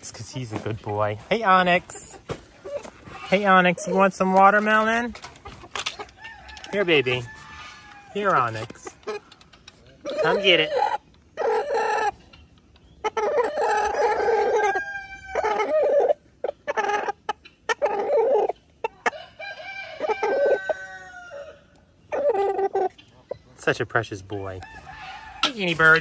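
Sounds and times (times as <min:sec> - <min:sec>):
rooster clucking: 0:01.6 - 0:23.4, 0:24.3 - 0:26.0
rooster crowing: 0:06.2 - 0:08.5, 0:13.6 - 0:16.1, 0:19.1 - 0:21.7, 0:24.6 - 0:25.6.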